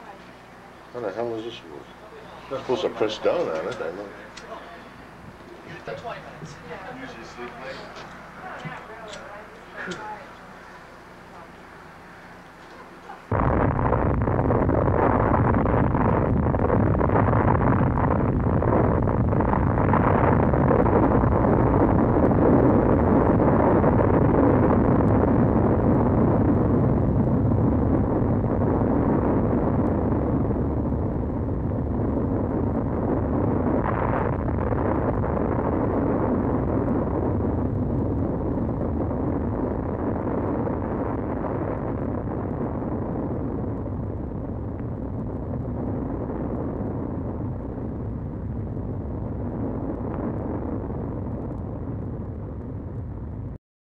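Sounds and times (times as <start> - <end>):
low explosion rumble: 13.2 - 53.6.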